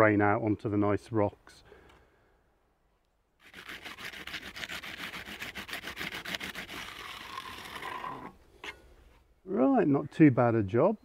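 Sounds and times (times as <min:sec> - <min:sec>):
trowel scraping wet concrete: 0:03.4 - 0:08.8.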